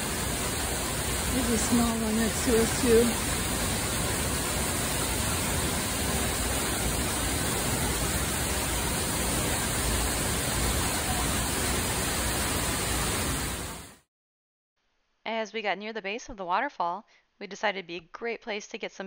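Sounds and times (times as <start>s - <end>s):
waterfall rushing: 0.0s - 14.0s.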